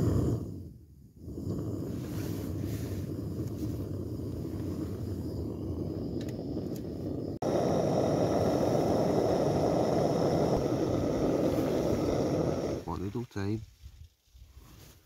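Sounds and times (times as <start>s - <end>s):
gas burner rushing: 0.0s - 13.0s
water boiling: 1.2s - 12.9s.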